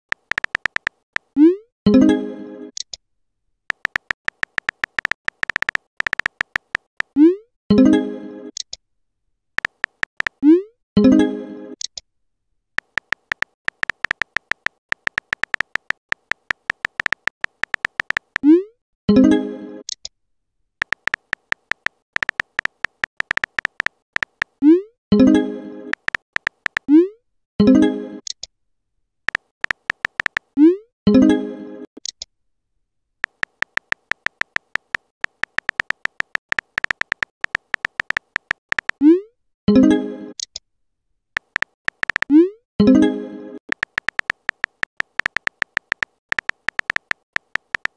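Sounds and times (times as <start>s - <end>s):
keyboard typing clicks: 0.1s - 1.3s, 3.7s - 7.2s, 9.6s - 10.4s, 12.8s - 18.5s, 20.8s - 24.6s, 25.9s - 26.9s, 29.3s - 30.5s, 33.2s - 39.0s, 41.4s - 42.3s, 43.7s - 47.9s.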